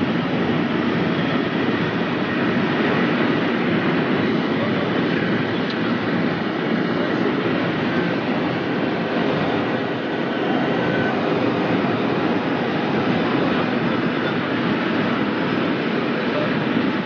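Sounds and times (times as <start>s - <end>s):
train wind and rolling noise: 0.0s - 17.0s.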